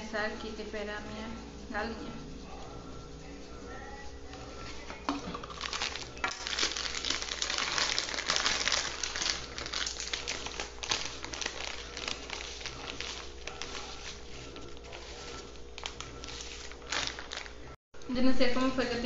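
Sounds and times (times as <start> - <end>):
plastic packet crinkling: 5.1 - 17.7.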